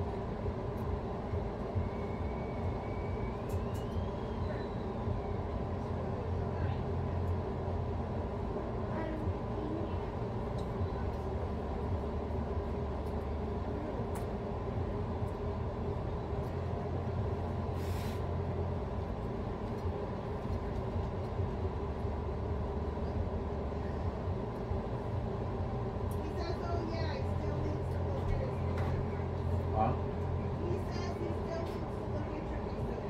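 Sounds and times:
faint hum: 0.0 - 33.0
low rumble: 0.0 - 33.0
brief hiss: 17.7 - 18.3.

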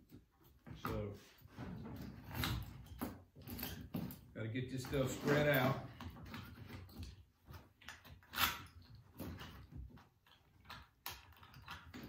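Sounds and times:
wooden pieces knocking and clicking: 5.1 - 12.0.

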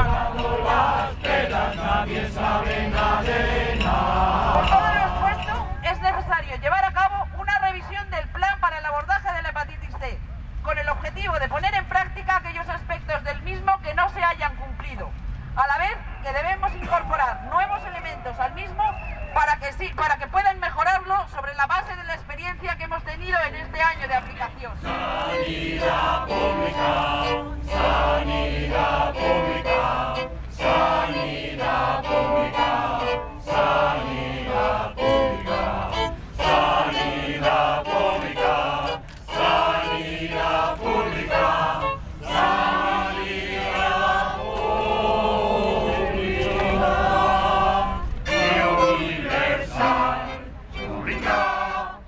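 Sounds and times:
choir singing in unison: 0.0 - 5.7, 24.8 - 52.0
violin: 24.8 - 52.0.

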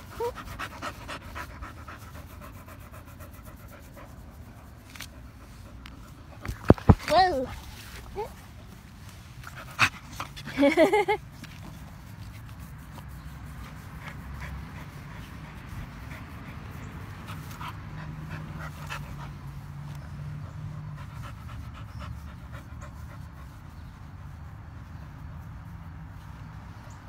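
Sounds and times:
dog panting: 0.0 - 7.5, 9.4 - 11.9, 13.5 - 24.3.

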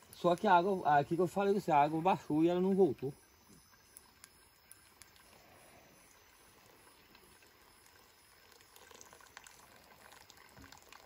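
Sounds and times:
water trickling onto coffee: 0.0 - 11.0.

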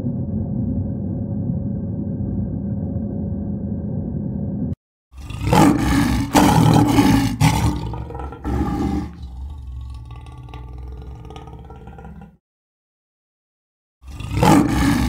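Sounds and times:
steady low hum: 0.0 - 4.8
lioness roaring: 5.2 - 12.4, 14.0 - 15.0.

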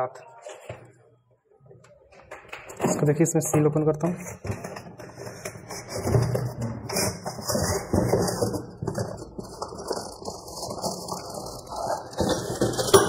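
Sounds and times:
cardboard scraping and rustling: 4.3 - 13.0.

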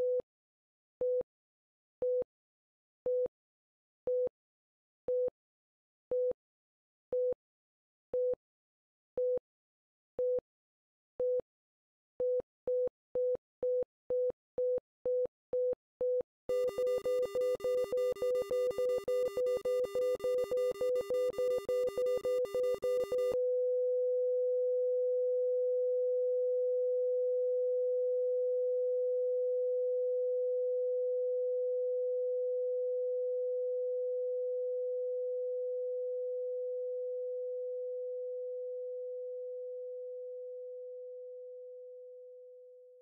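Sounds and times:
heart monitor flatline tone: 12.2 - 23.6
heart monitor beeping: 16.5 - 23.4.

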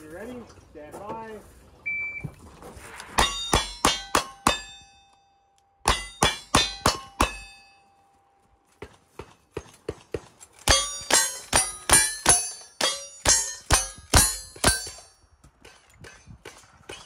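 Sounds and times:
steel target ringing: 3.2 - 8.3, 10.6 - 16.2.

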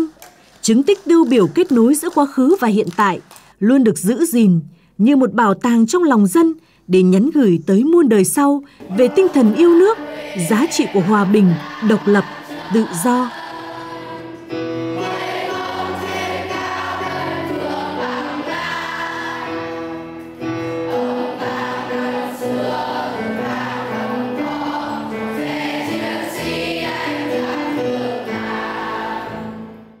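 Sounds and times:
girls singing in chorus: 8.9 - 19.9, 20.8 - 29.7.

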